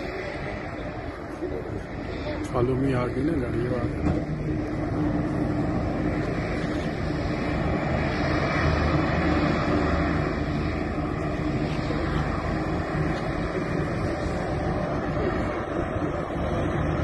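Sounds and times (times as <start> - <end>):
jet engines running: 0.0 - 17.0.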